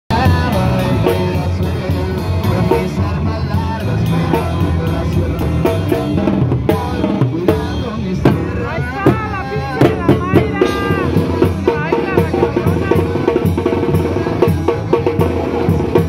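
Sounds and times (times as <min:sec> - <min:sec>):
bass line: 0:00.1 - 0:16.0
drum kit beat: 0:00.1 - 0:16.0
live dance music: 0:00.1 - 0:16.0.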